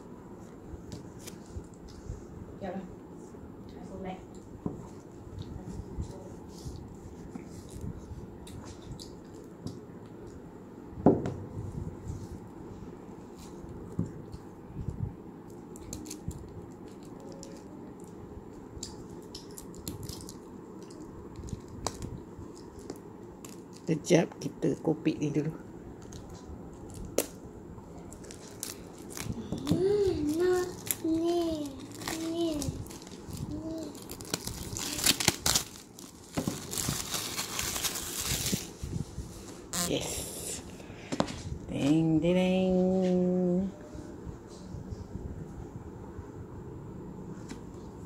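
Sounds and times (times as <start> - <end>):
plastic wrap crinkling: 28.0 - 39.0.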